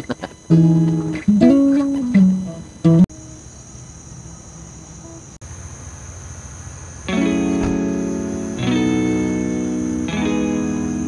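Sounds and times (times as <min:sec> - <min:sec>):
crickets and insects chirring: 0:00.0 - 0:11.0
acoustic guitar notes: 0:00.5 - 0:03.2, 0:07.1 - 0:11.0.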